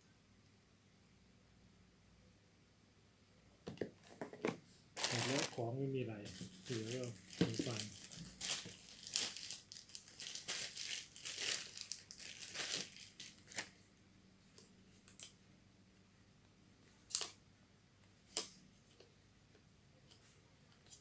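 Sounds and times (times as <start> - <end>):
plastic bag crinkling: 5.0 - 5.6, 6.2 - 13.7.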